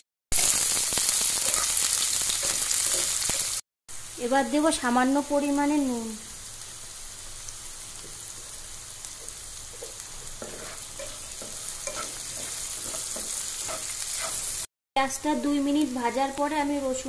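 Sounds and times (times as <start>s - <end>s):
onions sizzling in oil: 0.4s - 17.0s
spatula stirring and scraping: 1.4s - 3.5s, 9.2s - 14.7s.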